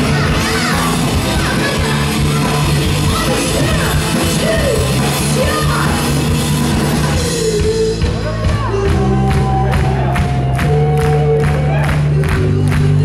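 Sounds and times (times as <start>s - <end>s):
woman singing and yelling: 0.0s - 6.0s
rock band playing live: 0.0s - 13.0s.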